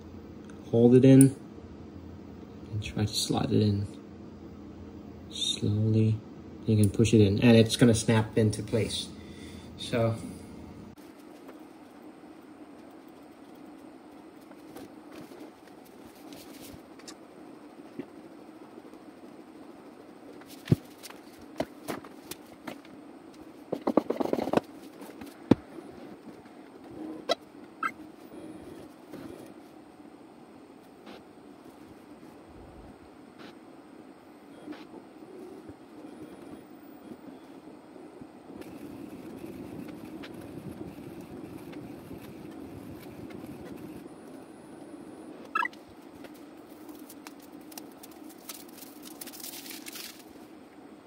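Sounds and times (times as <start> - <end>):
falling chirp: 45.5 - 45.8.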